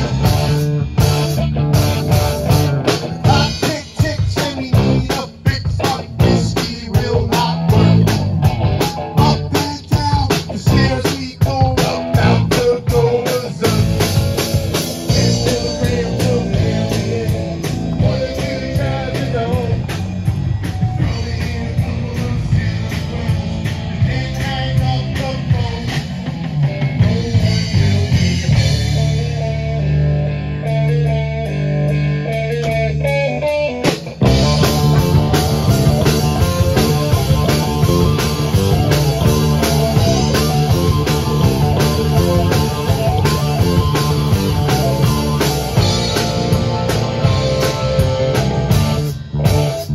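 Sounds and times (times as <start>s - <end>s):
rock band playing: 0.0s - 49.9s.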